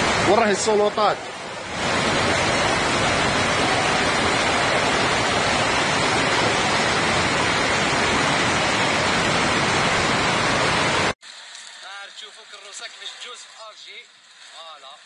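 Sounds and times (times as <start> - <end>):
floodwater rushing: 0.0 - 11.9
heavy rain: 0.0 - 15.0.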